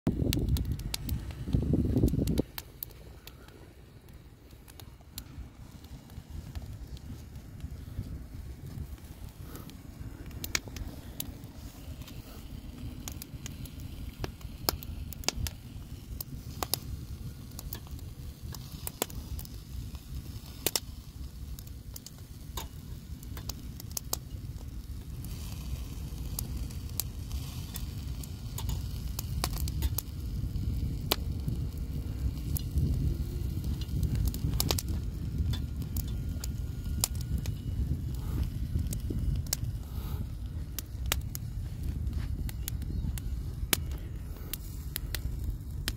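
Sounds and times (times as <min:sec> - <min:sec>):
steady low rumble: 0:00.1 - 0:45.9
wood fire crackling and popping: 0:00.1 - 0:45.9
food sizzling on a grill: 0:25.0 - 0:37.6.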